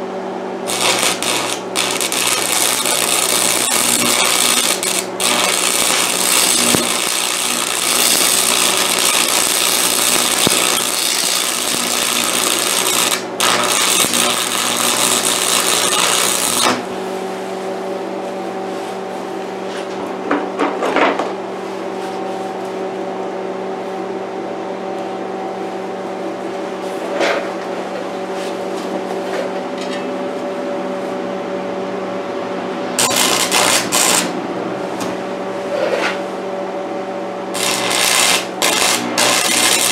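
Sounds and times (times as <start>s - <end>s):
steady hum: 0.0s - 39.9s
welding arc crackling and sizzling: 0.6s - 16.9s, 33.0s - 34.4s, 37.6s - 39.9s.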